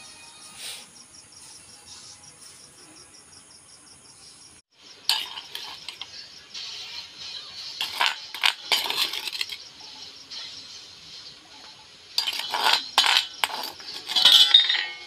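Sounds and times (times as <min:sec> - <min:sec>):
crickets chirping: 0:00.2 - 0:15.0
metal spoon clinking on bowl: 0:05.1 - 0:06.1, 0:07.8 - 0:09.6, 0:12.2 - 0:15.0.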